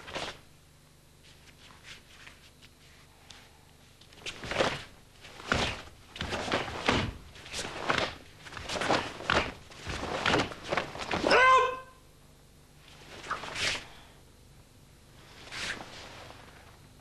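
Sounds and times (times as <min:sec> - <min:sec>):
sleeves snapping swishes: 0:04.0 - 0:11.3, 0:12.9 - 0:13.9, 0:15.4 - 0:16.8
bare feet stamping on mat: 0:04.4 - 0:11.3.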